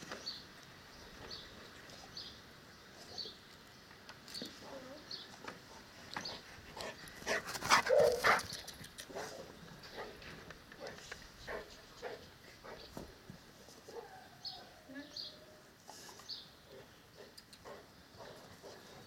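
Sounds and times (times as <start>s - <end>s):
dog barking: 7.9s - 8.3s.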